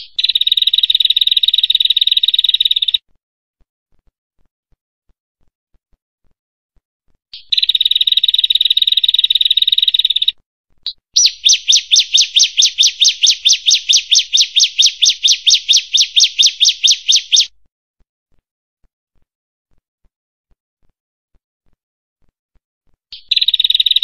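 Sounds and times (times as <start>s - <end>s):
bird sharp repeated notes: 10.9s - 17.5s
bird buzzy trill: 11.2s - 17.5s.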